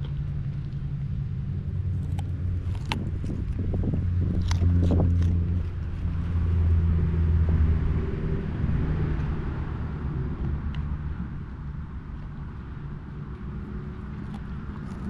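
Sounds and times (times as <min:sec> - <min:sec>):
dog crunching a carrot: 0:00.0 - 0:07.0, 0:12.1 - 0:15.0
low motor hum: 0:00.0 - 0:15.0.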